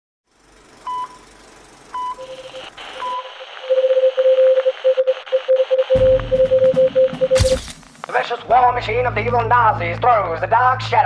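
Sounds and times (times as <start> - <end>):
morse code beeping tone: 0.9 - 1.2, 1.9 - 7.6
short high beeps: 2.0 - 7.6
radio static: 2.2 - 6.0.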